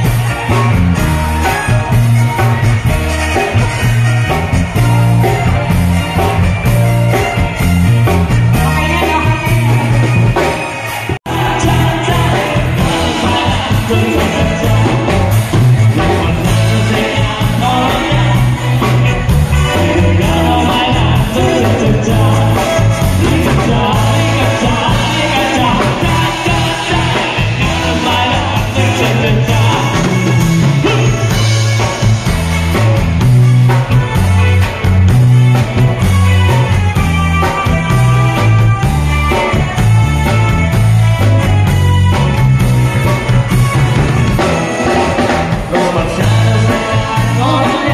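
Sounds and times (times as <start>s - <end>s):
rock band playing: 0.0s - 47.9s
person singing: 8.1s - 31.6s, 44.9s - 47.9s.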